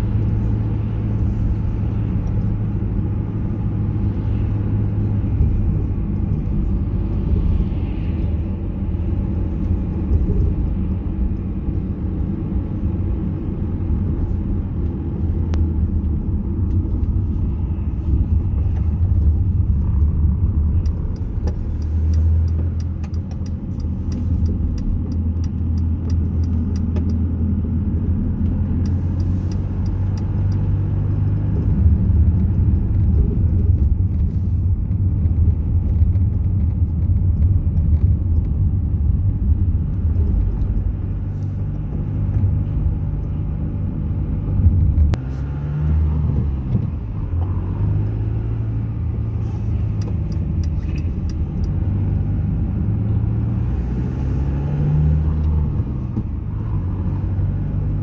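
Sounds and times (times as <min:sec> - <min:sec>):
car engine and tyre rumble: 0:00.0 - 0:58.0
turn indicator ticking: 0:18.1 - 0:34.0, 0:48.8 - 0:53.0.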